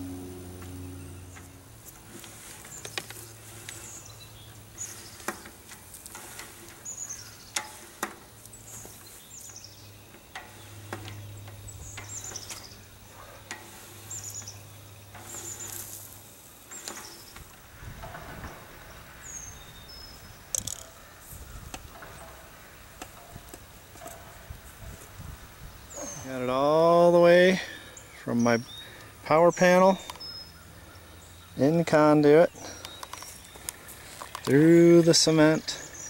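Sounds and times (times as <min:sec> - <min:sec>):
steady low hum: 0:00.0 - 0:26.6
small birds chirping: 0:00.0 - 0:36.0.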